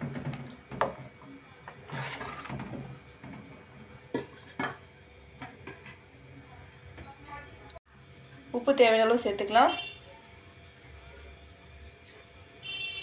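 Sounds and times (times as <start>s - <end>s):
spoon stirring curry in pan: 0.7s - 3.4s.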